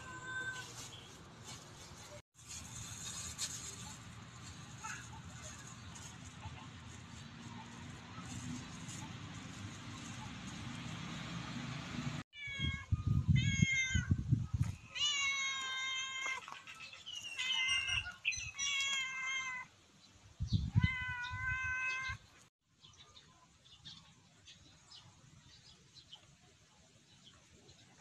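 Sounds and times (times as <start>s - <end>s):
cat meowing: 12.4s - 14.1s, 15.0s - 16.4s, 17.4s - 19.7s, 20.7s - 22.2s.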